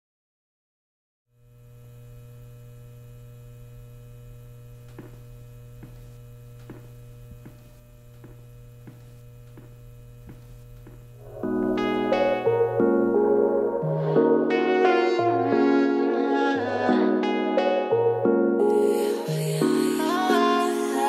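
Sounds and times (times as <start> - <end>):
electrical mains hum: 1.3 - 14.4
footsteps on tiled floor: 4.9 - 12.0.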